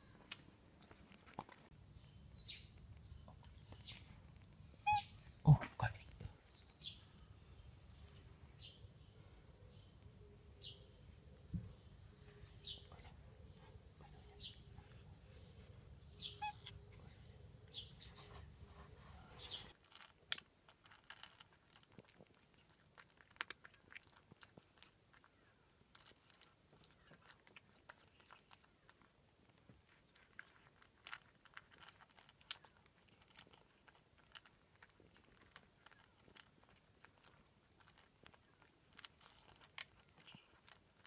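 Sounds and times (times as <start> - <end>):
cat crunching food: 19.7 - 41.0.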